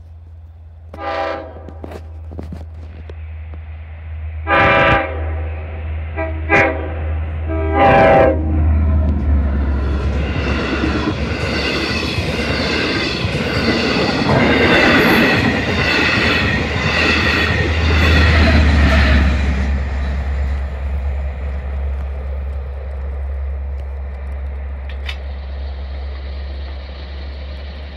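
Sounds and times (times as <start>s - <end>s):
train wheels clattering on rails: 9.0s - 27.9s.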